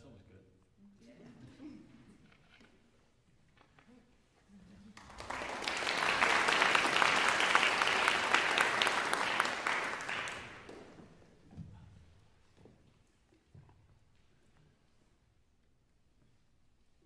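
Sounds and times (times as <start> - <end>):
audience applauding: 4.9 - 11.1.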